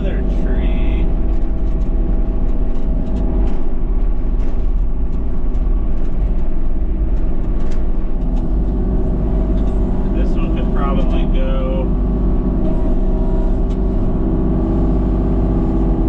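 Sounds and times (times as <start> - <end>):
engine running steadily: 0.0 - 16.0.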